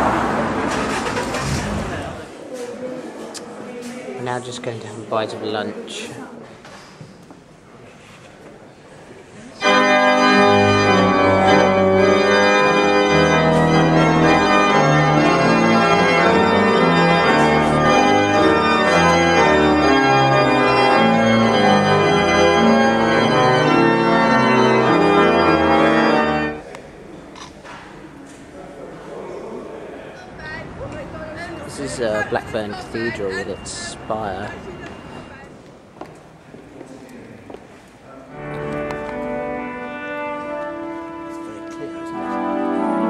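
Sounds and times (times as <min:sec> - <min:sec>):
pipe organ chords: 0:09.6 - 0:26.6, 0:38.3 - 0:43.0.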